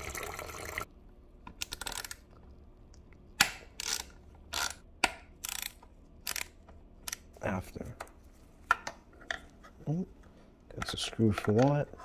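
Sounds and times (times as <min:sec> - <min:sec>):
screwdriver clicking and scraping: 0:05.4 - 0:07.3.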